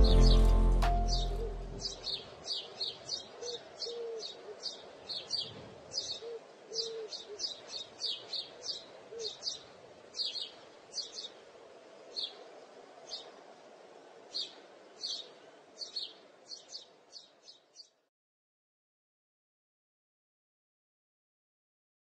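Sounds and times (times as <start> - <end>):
music: 0.0 - 2.0
birds chirping: 0.0 - 18.0.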